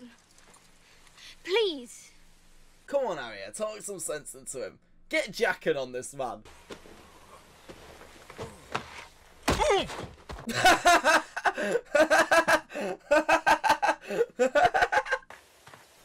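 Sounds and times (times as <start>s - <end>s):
young man laughing: 10.5s - 15.3s.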